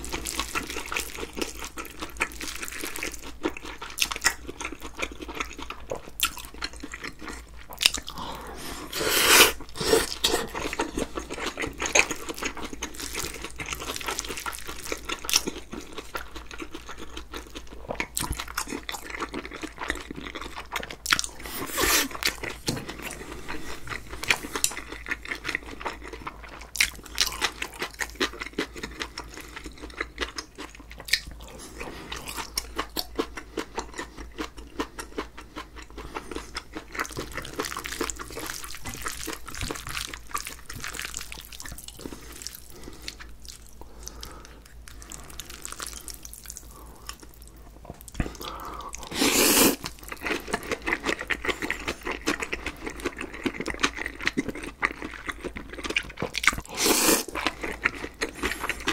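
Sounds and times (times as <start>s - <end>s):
wet chewing and lip-smacking: 0.0s - 58.9s.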